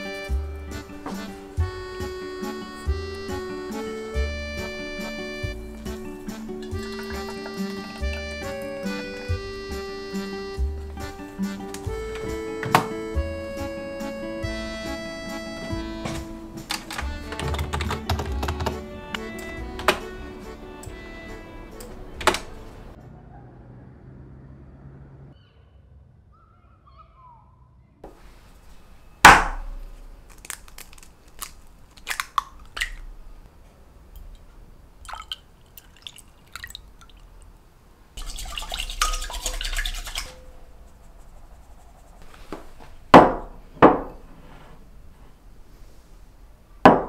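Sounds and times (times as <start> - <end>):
liquid pouring into glass bowl: 35.0 - 37.4, 38.2 - 40.4
glass cup knocking on wooden table: 43.2 - 44.1.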